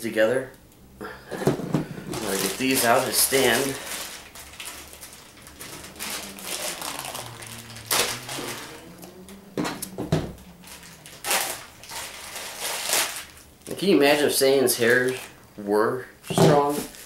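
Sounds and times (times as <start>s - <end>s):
plastic bag crinkling: 1.5s - 13.8s
plastic ripping: 1.9s - 13.5s.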